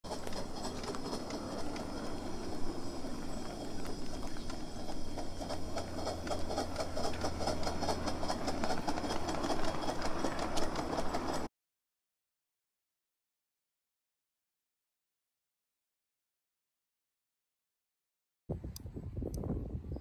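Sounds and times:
miniature steam locomotive rumble: 0.0s - 11.5s
rapid even clicking: 0.1s - 11.5s.

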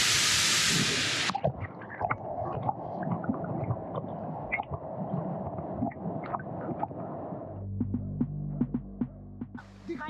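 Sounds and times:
underwater gurgling and rumbling: 1.2s - 8.1s.

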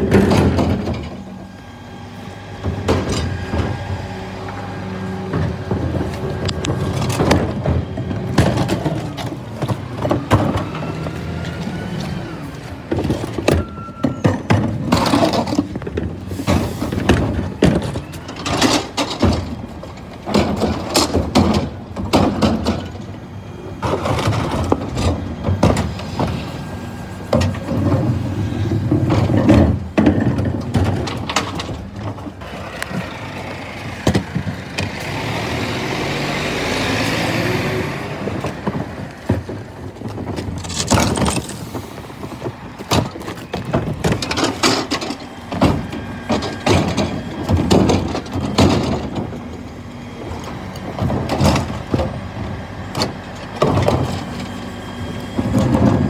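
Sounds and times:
plastic bins knocking and clattering: 0.0s - 1.2s, 5.3s - 11.1s, 12.8s - 23.1s, 23.8s - 26.4s, 27.3s - 32.4s, 38.2s - 49.4s, 50.9s - 54.3s
truck lift and packing gear rush: 0.0s - 56.0s.

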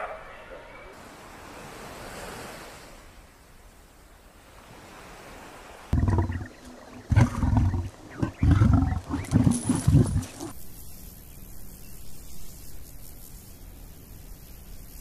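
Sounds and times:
faint steady hiss: 0.9s - 5.9s, 9.6s - 15.0s
leopard growling: 6.0s - 10.6s.

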